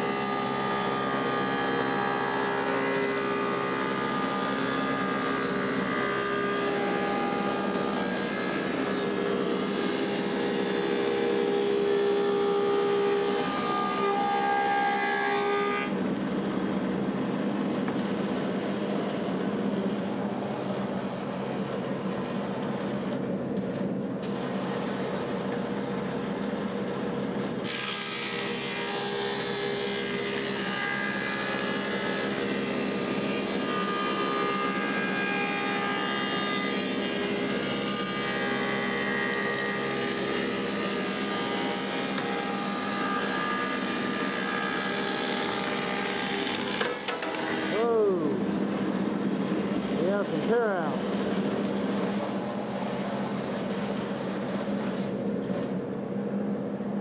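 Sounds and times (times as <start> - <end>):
planer cutting wood board: 0.0 - 17.0, 27.6 - 53.1
thickness planer running: 0.0 - 57.0.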